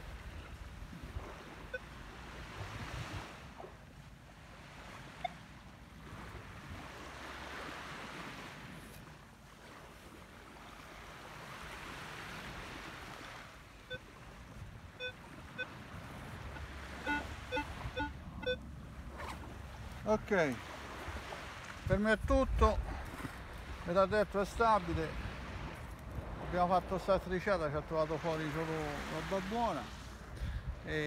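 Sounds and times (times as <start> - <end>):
surf washing on shore: 0.0 - 31.0
metal detector beeps: 1.4 - 2.0, 13.9 - 14.1, 15.0 - 15.8, 17.0 - 18.6.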